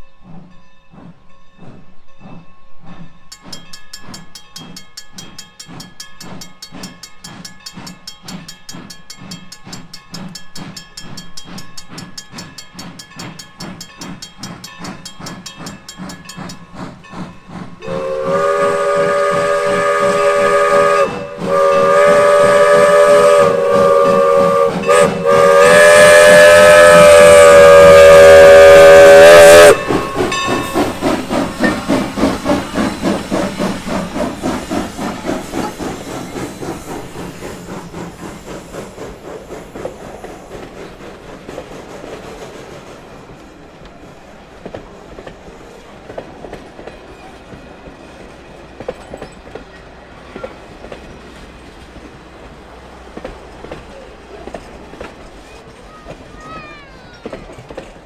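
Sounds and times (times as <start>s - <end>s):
steam locomotive chuffing: 0.0s - 58.0s
train chime whistle: 17.8s - 31.0s.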